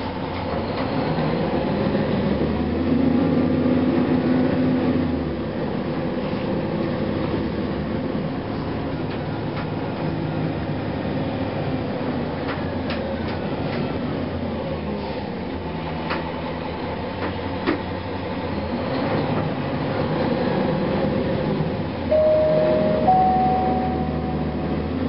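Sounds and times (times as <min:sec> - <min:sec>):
bus diesel engine running: 0:00.0 - 0:25.0
road noise: 0:00.0 - 0:25.0.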